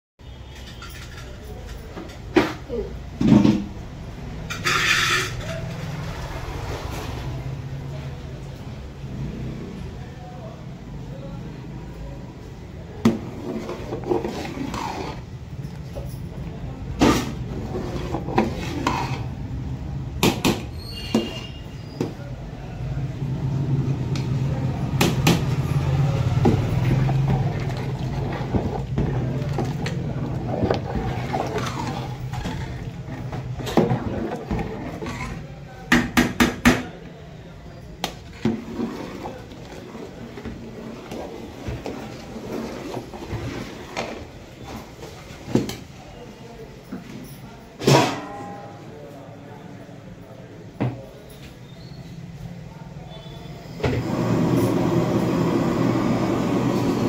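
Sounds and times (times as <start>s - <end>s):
ladle scraping and knocking metal pot: 4.4s - 6.2s, 13.0s - 15.8s, 17.0s - 19.4s, 26.4s - 36.6s, 38.0s - 44.2s.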